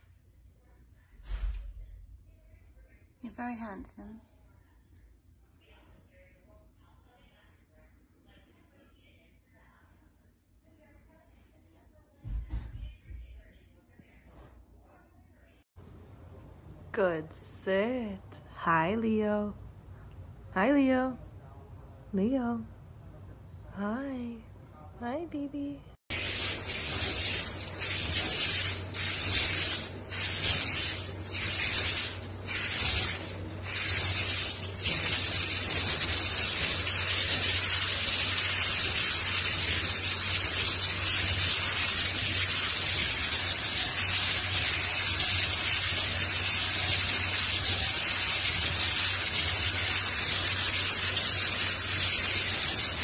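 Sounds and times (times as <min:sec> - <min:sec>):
shower head spraying water: 0:26.1 - 0:53.0.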